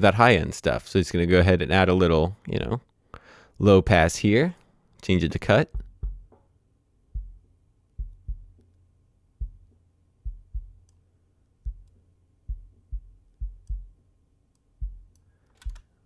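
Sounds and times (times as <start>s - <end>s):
deep kick drum thumps: 5.7s - 6.4s, 7.2s - 7.4s, 8.0s - 8.6s, 9.4s - 10.8s, 11.6s - 11.9s, 12.5s - 14.0s, 14.8s - 15.1s.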